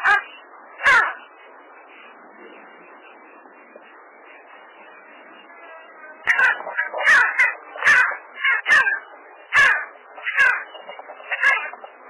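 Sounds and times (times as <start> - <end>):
sandgrouse calls: 0.0 - 1.2, 6.1 - 12.0.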